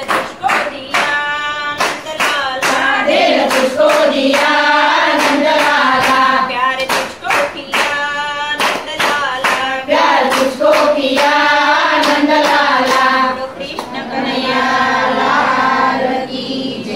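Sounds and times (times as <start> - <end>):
hands clapping in time: 0.0 - 1.2, 1.8 - 11.4, 12.0 - 13.1, 13.7 - 14.0
women singing in unison: 0.0 - 16.9.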